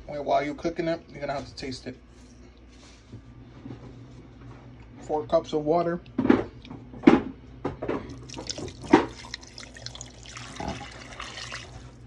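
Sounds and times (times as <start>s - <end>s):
water pouring and splashing into pot: 8.1s - 12.0s.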